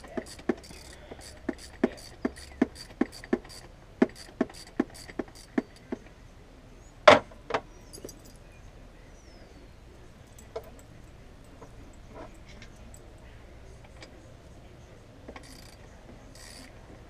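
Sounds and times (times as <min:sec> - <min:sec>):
ratchet wrench clicking: 0:00.0 - 0:05.9, 0:15.3 - 0:16.8
tool clanking against metal: 0:00.0 - 0:06.0.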